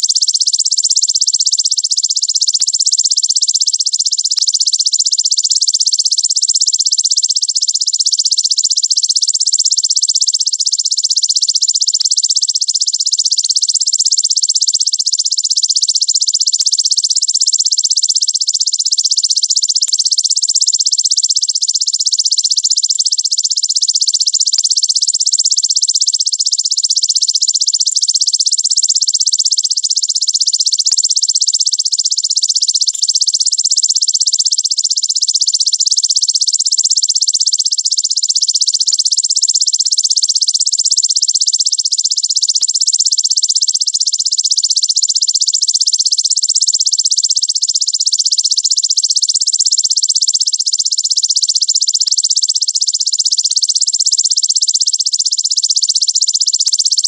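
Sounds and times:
insect trilling: 31.1 - 35.0.

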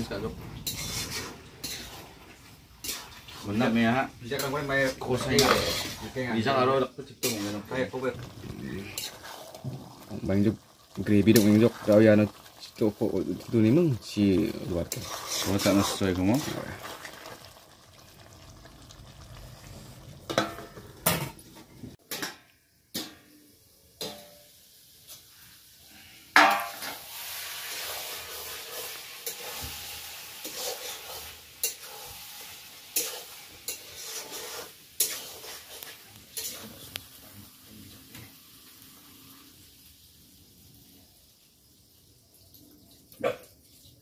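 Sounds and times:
metal ladle scraping a wok: 0.0 - 6.3, 7.2 - 7.9, 8.6 - 9.6, 14.9 - 16.6, 26.7 - 36.9
curry sizzling: 0.0 - 44.0.

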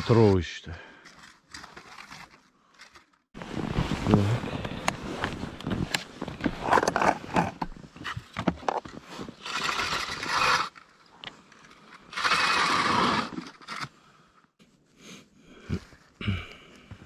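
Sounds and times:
scraping and rustling of gear: 1.0 - 14.0.

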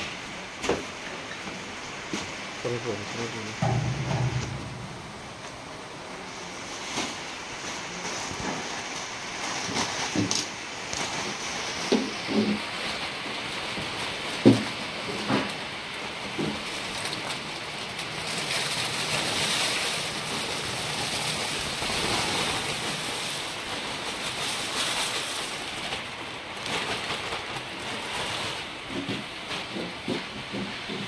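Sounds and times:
water splashing in a steel washer: 3.1 - 7.6.

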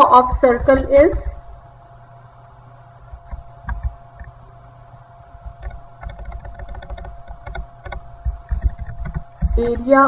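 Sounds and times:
faint steady hum: 0.0 - 10.0
computer keyboard typing: 5.4 - 10.0.

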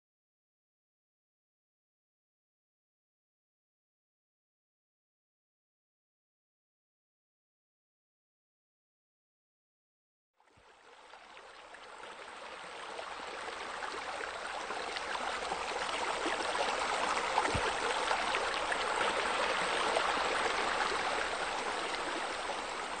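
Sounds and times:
running splashing water: 14.5 - 23.0.

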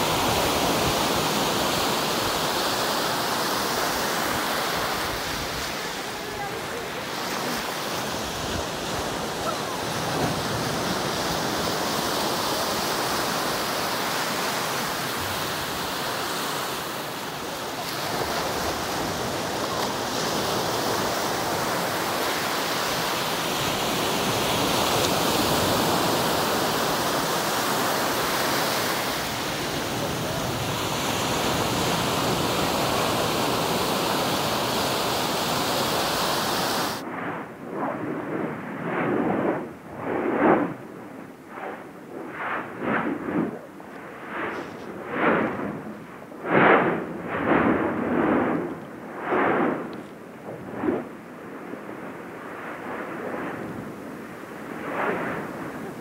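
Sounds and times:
breaking waves: 0.0 - 38.8.

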